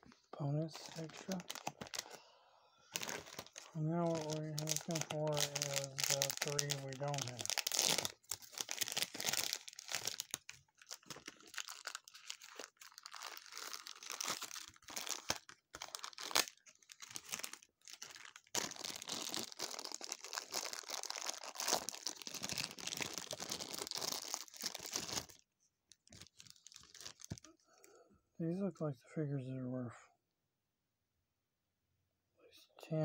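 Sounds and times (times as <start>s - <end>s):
plastic bag crinkling: 0.7s - 2.2s, 2.9s - 27.6s.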